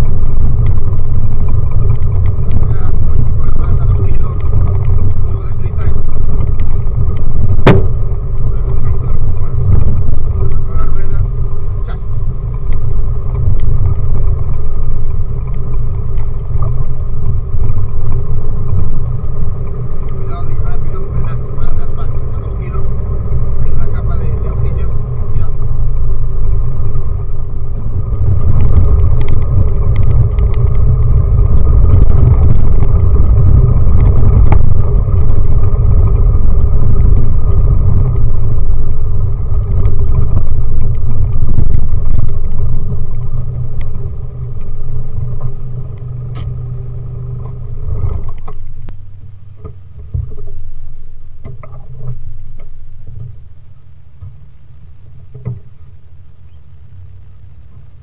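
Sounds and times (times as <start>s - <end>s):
engine running loud: 0.0s - 58.0s
scattered knocks: 7.6s - 8.0s.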